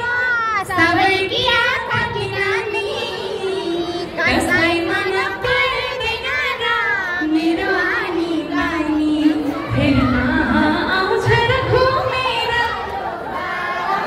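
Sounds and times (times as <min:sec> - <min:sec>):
crowd chatter: 0:00.0 - 0:14.0.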